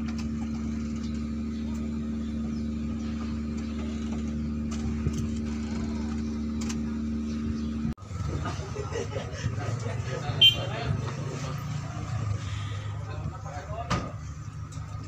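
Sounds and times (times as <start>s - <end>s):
ferry machinery drone: 0.0s - 15.0s.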